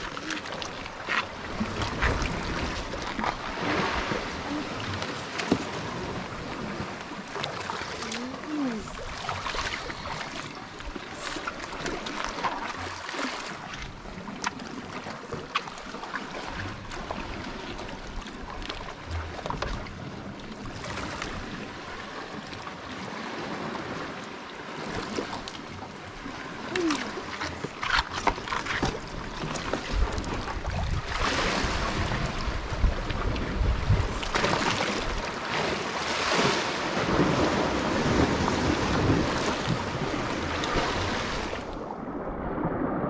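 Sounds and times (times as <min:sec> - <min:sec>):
sea washing against rocks: 0:00.0 - 0:43.0
wind on microphone: 0:28.8 - 0:35.3.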